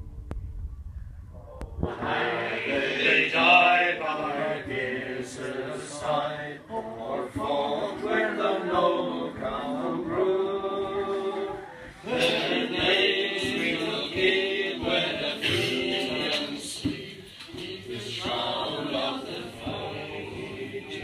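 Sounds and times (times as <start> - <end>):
low rumble: 0.0 - 2.7
group singing folk song unaccompanied: 1.8 - 21.0.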